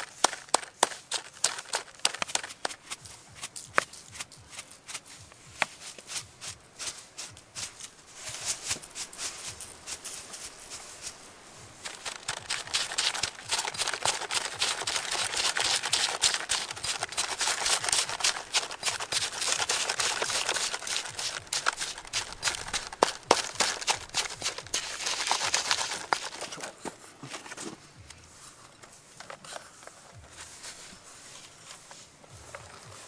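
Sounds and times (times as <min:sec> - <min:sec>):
pestle grinding in stone mortar: 0:11.8 - 0:26.6.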